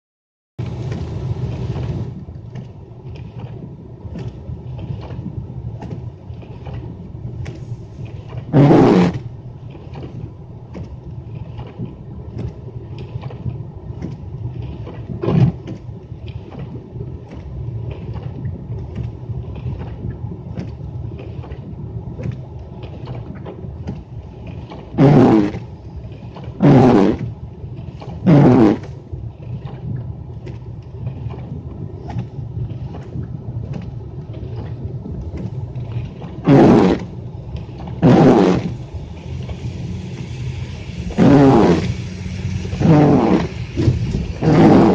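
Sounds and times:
windshield wipers swishing: 0:31.3 - 0:44.9.

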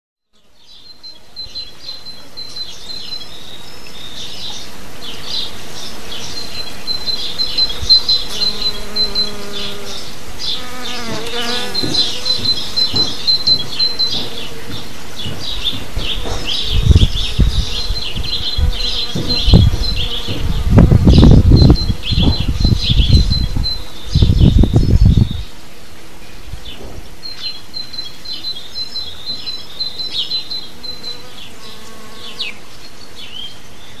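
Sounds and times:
songbirds chirping: 0:00.3 - 0:34.0
bees buzzing: 0:01.0 - 0:33.6.

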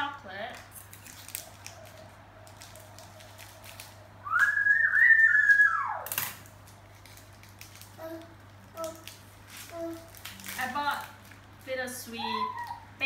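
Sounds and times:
wrapper crinkling: 0:00.4 - 0:12.9
high whistle-like whine: 0:04.2 - 0:06.1.

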